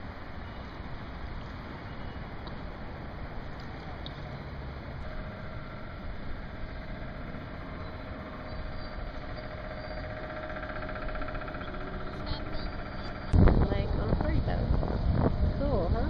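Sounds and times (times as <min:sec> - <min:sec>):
distant engine drone: 0:00.0 - 0:16.0
open-air background noise: 0:00.0 - 0:16.0.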